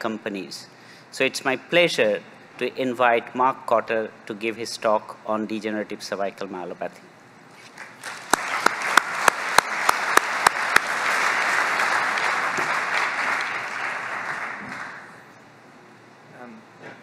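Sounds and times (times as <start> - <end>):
loud single claps: 7.8 - 15.1
audience applauding: 7.8 - 15.2.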